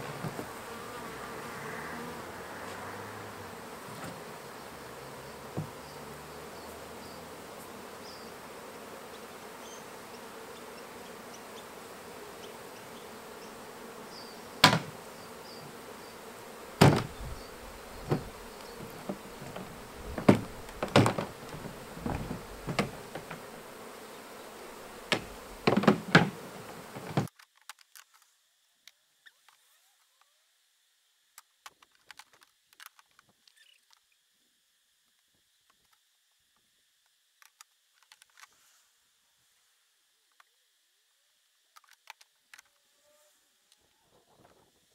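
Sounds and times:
bees buzzing: 0.0 - 27.3
knocks of wooden frames and lids: 5.5 - 5.8, 14.6 - 15.0, 16.8 - 23.6, 24.8 - 27.3.

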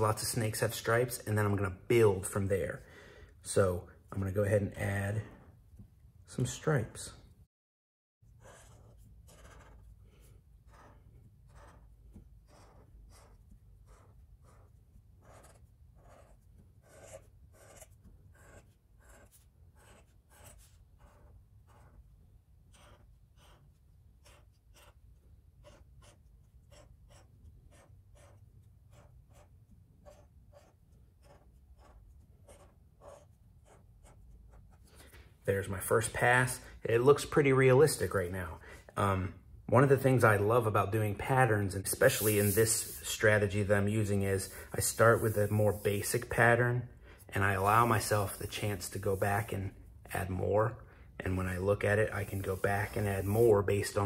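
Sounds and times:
marker scratching on paper: 8.3 - 35.0, 41.9 - 46.6, 47.4 - 50.4, 51.3 - 54.0.

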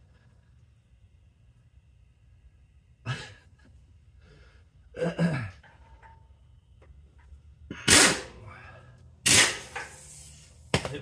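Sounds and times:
sharp crack of nut breaking loose: 7.8 - 8.4, 9.2 - 11.0.

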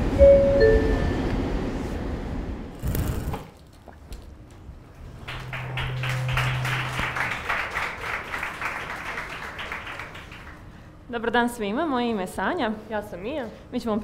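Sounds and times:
low steady hum: 3.6 - 14.0
intro music jingle: 4.9 - 9.1
audience clapping: 4.9 - 10.9.

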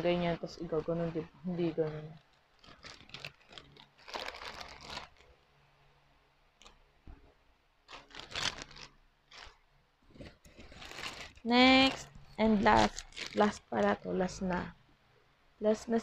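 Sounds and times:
plastic packaging crinkling: 1.8 - 5.4, 7.8 - 14.0.

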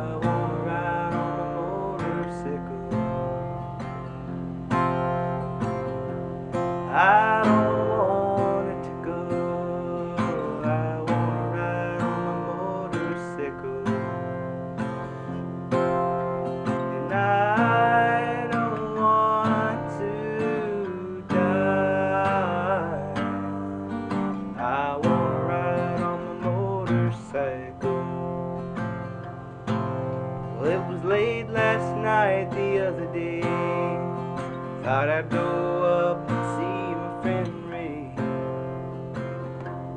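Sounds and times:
acoustic guitar music: 0.0 - 39.9.

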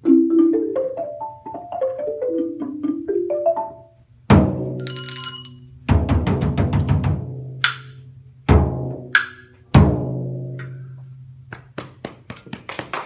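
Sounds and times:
handbell rings: 4.8 - 5.6.

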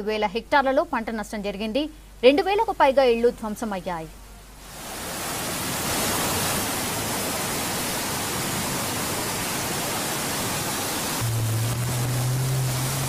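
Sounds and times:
floodwater rushing: 4.6 - 13.0
bus engine hum: 11.2 - 13.0.

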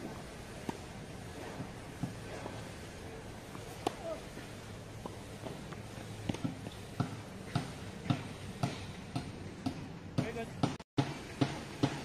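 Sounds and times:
racket hitting tennis ball: 3.5 - 12.0.

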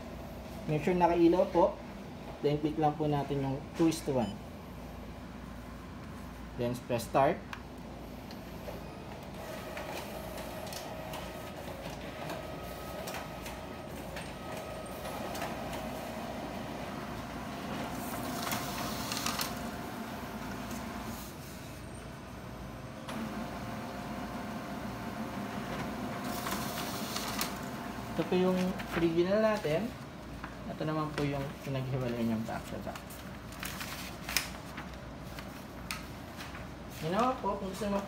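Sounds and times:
copier whirring: 0.0 - 38.0
copier clicks: 9.2 - 20.9, 25.1 - 29.2
paper feeding rush: 9.4 - 21.2, 23.2 - 29.9.

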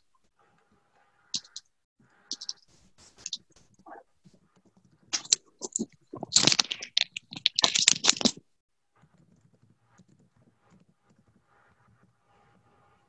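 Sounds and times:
computer keyboard typing: 1.4 - 1.6, 2.3 - 2.6.

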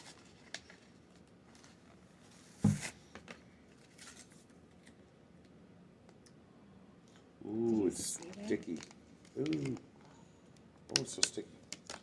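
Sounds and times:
plastic packaging rustling: 7.9 - 9.8.

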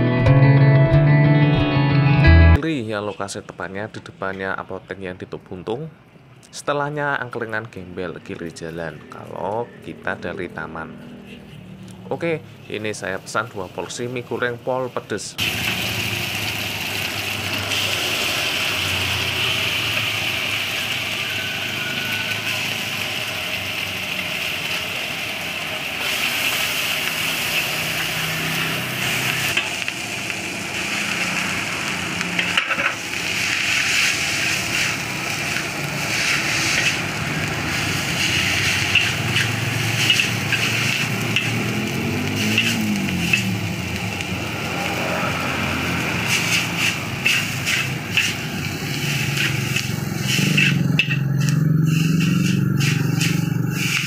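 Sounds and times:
food sizzling in a wok: 13.2 - 54.0
metal spatula scraping a pan: 32.4 - 37.1, 38.2 - 41.6, 42.4 - 43.5, 46.2 - 54.0.

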